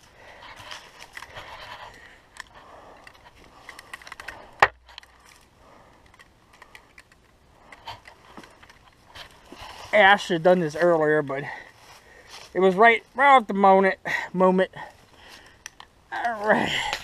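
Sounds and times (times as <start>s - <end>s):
camera handling clicks and rustles: 0.5s - 9.8s, 15.3s - 17.0s.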